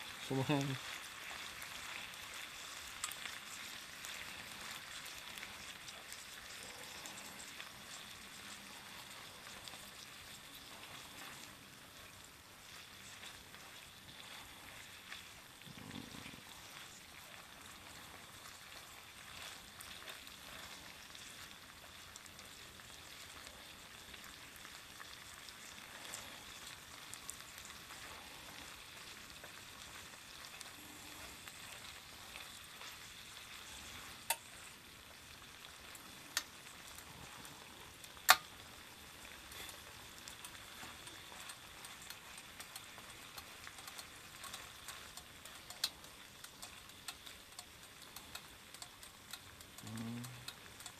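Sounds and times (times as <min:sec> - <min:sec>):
meat sizzling in oil: 0:00.0 - 0:50.9
chopsticks clicking on pan: 0:34.2 - 0:34.5, 0:38.2 - 0:38.6, 0:40.3 - 0:50.9.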